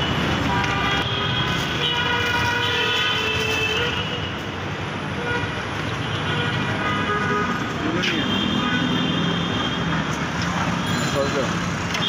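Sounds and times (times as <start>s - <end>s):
street traffic: 0.0s - 12.0s
vehicle horns sounding: 0.4s - 4.4s, 5.2s - 10.1s.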